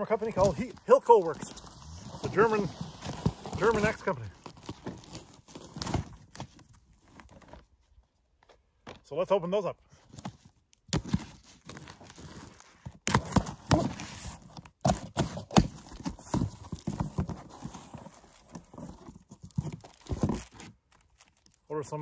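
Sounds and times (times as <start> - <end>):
cardboard flaps rustling: 0.0 - 9.0, 10.0 - 21.6
knife slicing tape and cardboard: 10.9 - 17.0.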